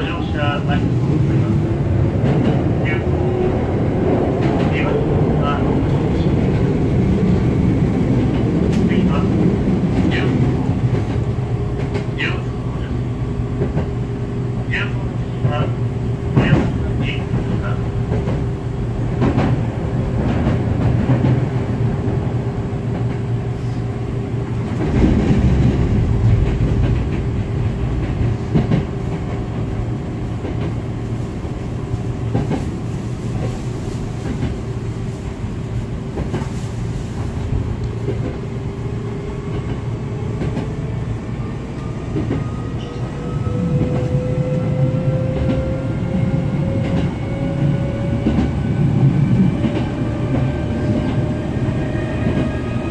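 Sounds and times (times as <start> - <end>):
wheel and rail rumble: 0.0 - 52.9
clacks over rail joints: 8.3 - 12.4, 16.3 - 18.5, 19.1 - 19.6, 24.6 - 29.5.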